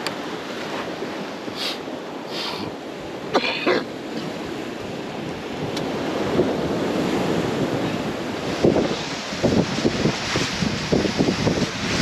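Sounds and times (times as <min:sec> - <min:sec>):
water: 0:00.0 - 0:12.0
wind noise on microphone: 0:00.0 - 0:12.0
short harsh cough-like sound: 0:03.4 - 0:03.9.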